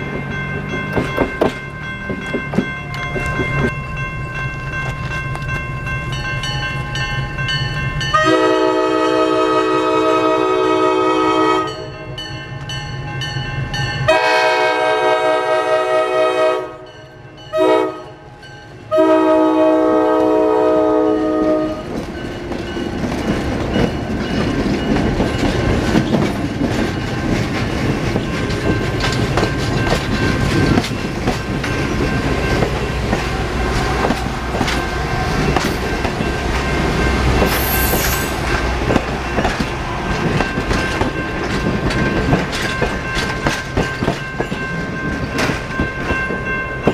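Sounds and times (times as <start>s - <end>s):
wheels clicking over rail joints: 0.0s - 4.1s, 21.3s - 46.9s
train engine rumble: 0.0s - 46.9s
locomotive air horn: 8.1s - 11.9s, 14.1s - 16.8s, 17.5s - 18.2s, 18.9s - 21.8s.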